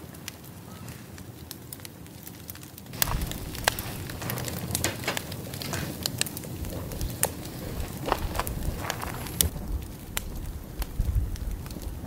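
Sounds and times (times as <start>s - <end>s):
wood fire crackling and popping: 0.0s - 12.0s
low rumble: 3.0s - 4.7s, 6.5s - 12.0s.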